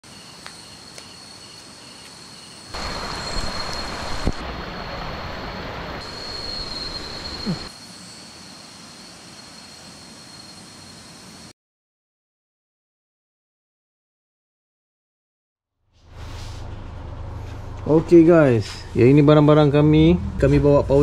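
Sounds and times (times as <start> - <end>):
insects chirping: 0.0 - 11.5.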